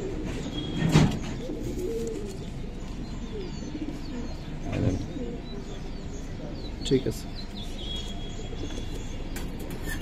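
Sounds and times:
pigeons cooing: 0.0 - 6.5.

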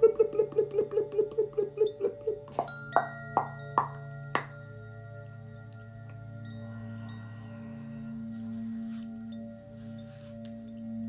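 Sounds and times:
low steady drone: 0.0 - 11.0
bell-like metal strikes: 2.5 - 11.0.

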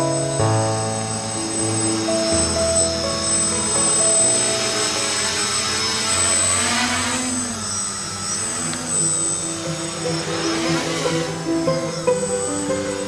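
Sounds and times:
drone motors buzzing: 0.0 - 13.0.

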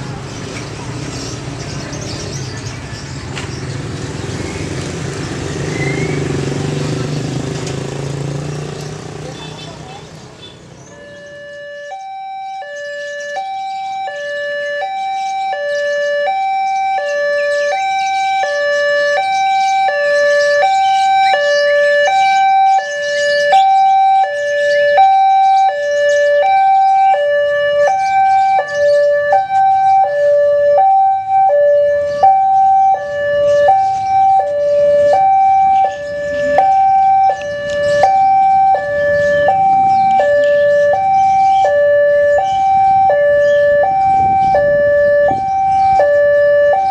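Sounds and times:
level crossing two-tone alarm: 10.9 - 46.9.

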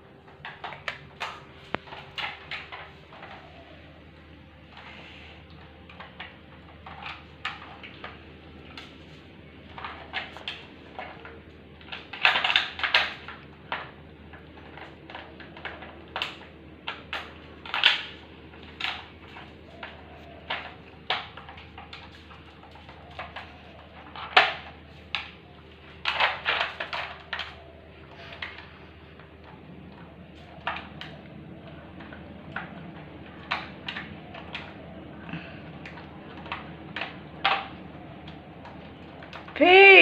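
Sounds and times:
hard plastic pieces clattering: 4.6 - 32.7.

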